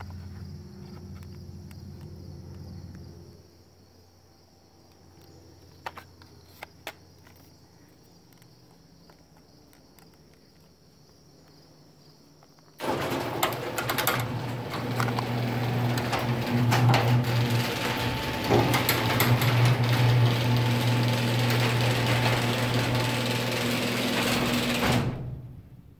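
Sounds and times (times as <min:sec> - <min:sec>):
screw drive rattle: 0:12.8 - 0:24.9
garage door opener motor hum: 0:12.8 - 0:25.7
garage door moving along track: 0:12.8 - 0:25.9.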